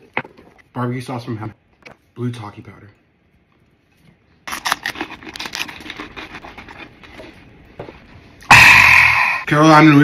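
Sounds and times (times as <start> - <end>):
wet mouth licking and sucking: 4.5 - 7.2
loud noisy outburst: 8.5 - 9.5.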